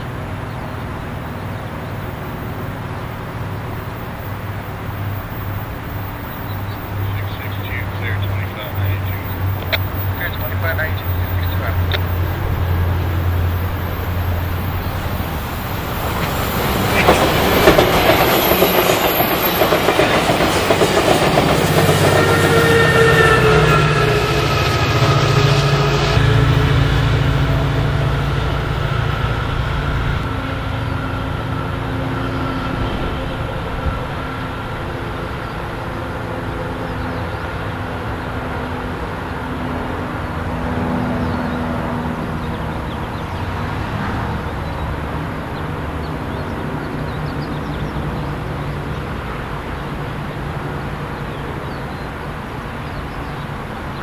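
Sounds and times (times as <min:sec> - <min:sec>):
diesel train engine drone: 0:00.0 - 0:54.0
rail rumble: 0:00.0 - 0:54.0.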